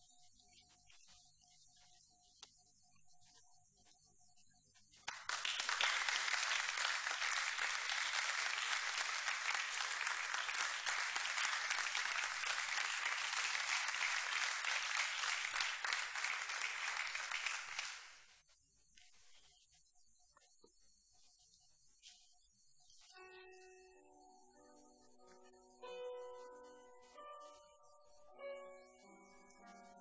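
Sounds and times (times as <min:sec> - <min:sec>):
audience applauding: 0:05.1 - 0:18.3.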